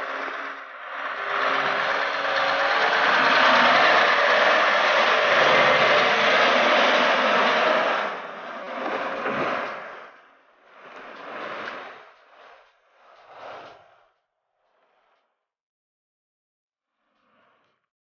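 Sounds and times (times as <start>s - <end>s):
truck driving past: 0.0s - 8.7s.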